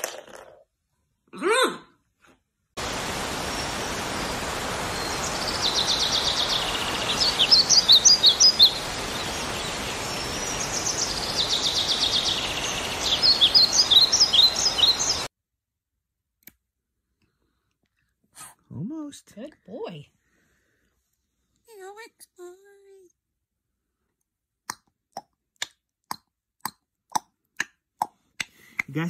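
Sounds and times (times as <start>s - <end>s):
small songbirds chirping: 2.8s - 15.3s
steady outdoor hiss: 2.8s - 15.3s.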